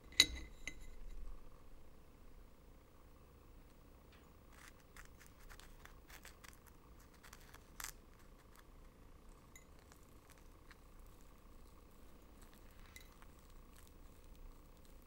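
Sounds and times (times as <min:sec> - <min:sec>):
fingers rubbing sugary food: 0:04.4 - 0:15.0.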